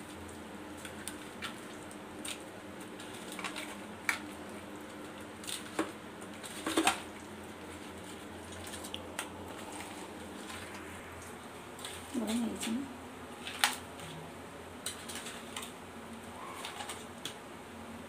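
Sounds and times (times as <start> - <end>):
faint steady hum: 0.0 - 18.0
wet squelching of fish mixed by hand: 0.7 - 14.2.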